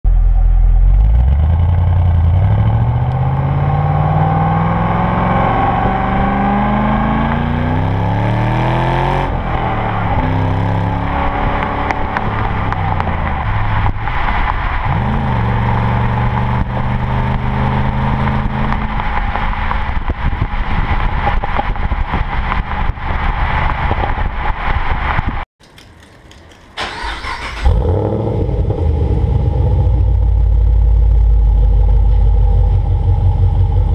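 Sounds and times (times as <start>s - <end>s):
deep car exhaust note: 0.1s - 14.0s, 27.6s - 33.9s
car engine revving: 0.1s - 25.4s, 26.8s - 33.9s.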